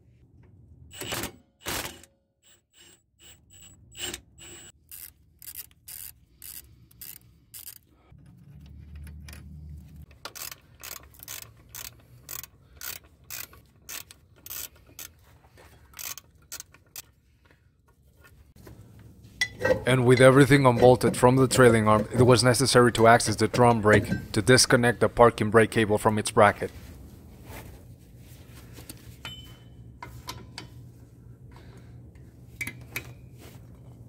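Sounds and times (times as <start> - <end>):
ratchet wrench clicking: 2.8 - 7.9, 8.9 - 15.2, 16.0 - 17.1.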